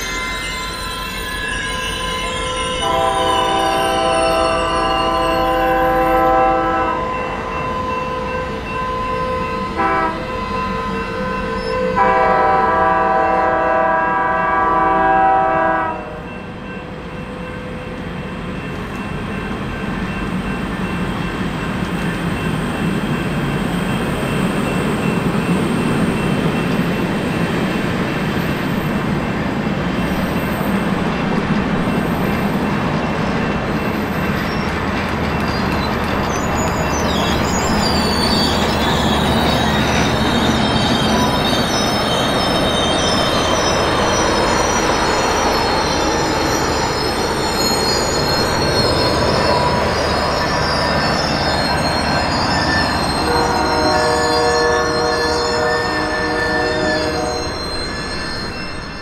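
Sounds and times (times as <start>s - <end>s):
train cars rolling on rails: 0.0s - 59.0s
steam whistle blasts: 2.8s - 7.3s, 9.8s - 10.3s, 11.9s - 16.2s, 53.2s - 57.6s.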